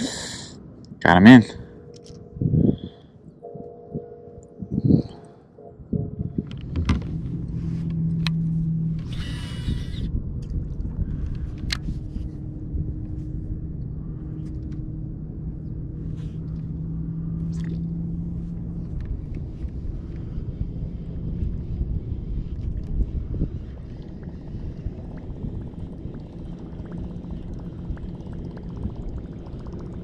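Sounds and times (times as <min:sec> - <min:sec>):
low rumble: 0:01.4 - 0:30.0
motor droning: 0:01.6 - 0:30.0
fishing reel clicks: 0:09.0 - 0:10.1.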